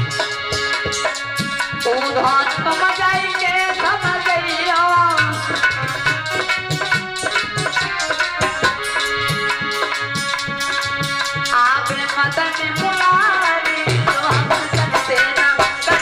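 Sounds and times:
drum strokes: 0:00.0 - 0:16.0
held accompaniment notes: 0:00.0 - 0:16.0
boy singing: 0:01.7 - 0:08.8, 0:10.6 - 0:16.0.

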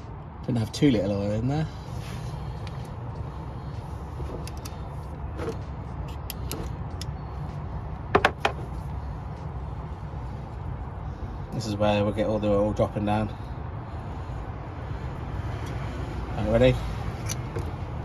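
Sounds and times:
steady low hum: 0:00.0 - 0:18.0
metallic clicks of hand tools: 0:17.2 - 0:17.7.

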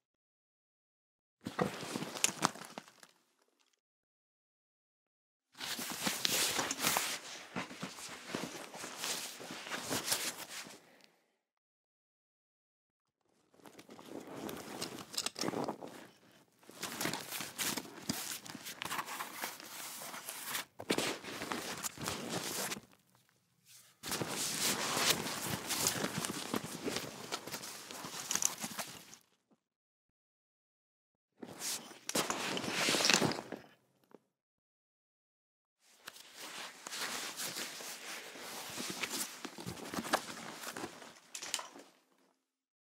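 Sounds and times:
backpack rustling: 0:05.6 - 0:10.6, 0:13.5 - 0:22.9, 0:23.8 - 0:29.1, 0:36.4 - 0:41.8.

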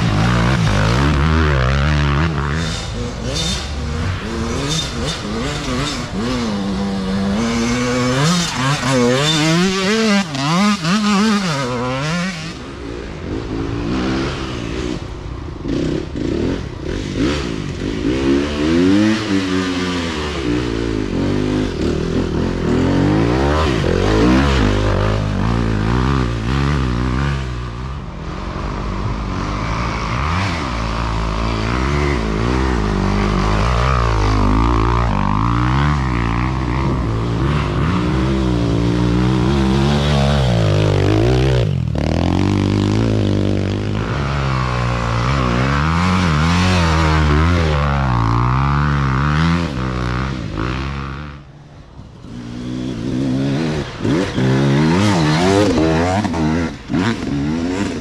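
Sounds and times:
dirt bike engines revving: 0:00.0 - 0:58.0.

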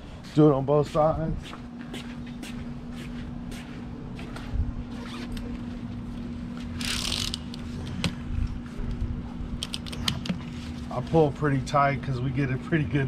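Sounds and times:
fan humming: 0:00.0 - 0:13.0
buckles and straps clicking: 0:06.8 - 0:07.6, 0:09.6 - 0:10.3.

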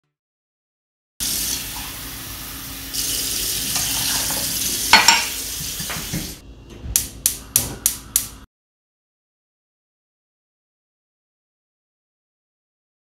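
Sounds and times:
tea boiling in a pan: 0:01.2 - 0:06.1.

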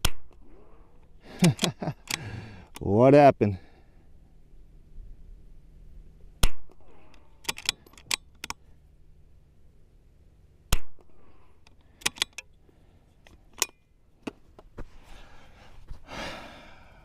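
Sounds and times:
rifle bolt metallic clicks: 0:01.4 - 0:03.0, 0:06.4 - 0:08.6, 0:10.7 - 0:12.6, 0:13.2 - 0:14.4.

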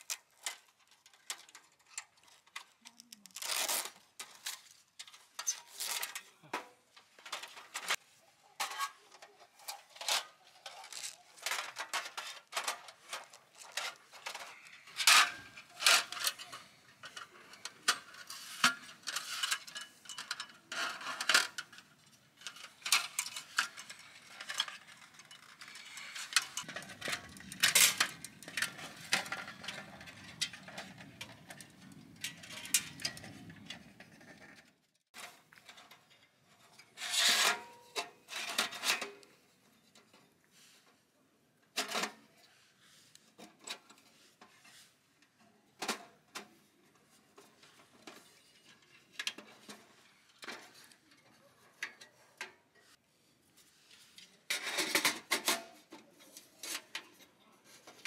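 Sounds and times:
objects being handled: 0:00.0 - 0:41.0.

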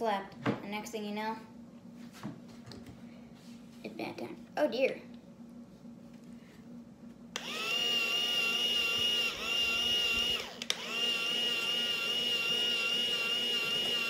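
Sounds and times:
small electric motor whining: 0:07.4 - 0:14.0.

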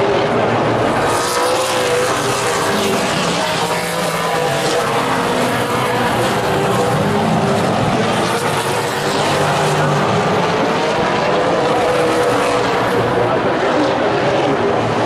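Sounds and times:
race car engines droning: 0:00.0 - 0:15.0.

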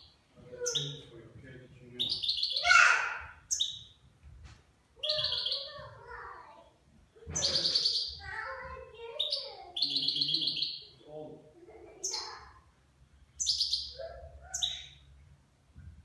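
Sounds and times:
finch singing buzzy trills: 0:05.0 - 0:05.8, 0:07.4 - 0:08.2, 0:09.2 - 0:10.9, 0:13.4 - 0:15.0.

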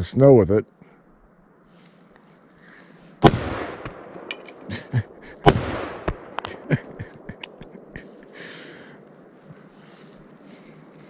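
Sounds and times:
rifle shots echoing: 0:03.2 - 0:08.1
sharp clicks and cracks: 0:03.6 - 0:04.7, 0:05.4 - 0:08.3.

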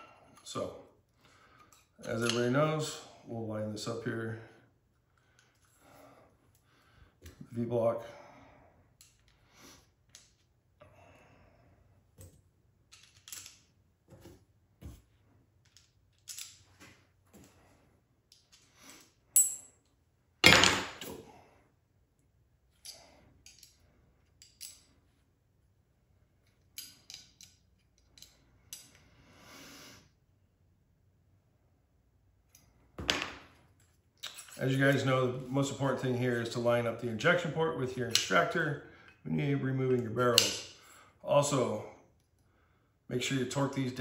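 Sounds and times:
metal parts clicking and scraping: 0:12.8 - 0:13.8, 0:15.6 - 0:16.8, 0:22.7 - 0:25.0, 0:26.4 - 0:29.0, 0:33.8 - 0:35.0.

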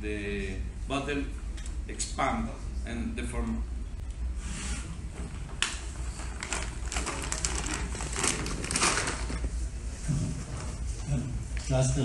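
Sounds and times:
low room hum: 0:00.0 - 0:12.0
plastic bottle crackling: 0:06.2 - 0:09.6.

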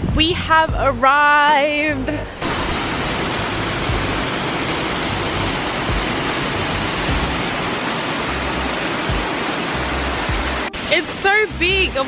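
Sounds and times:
waterfall rushing: 0:02.4 - 0:12.0.

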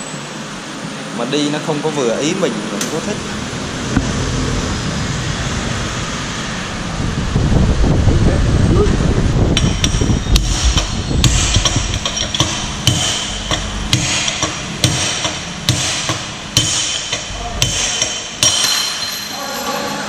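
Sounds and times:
hammer striking steel tube: 0:09.6 - 0:19.3.

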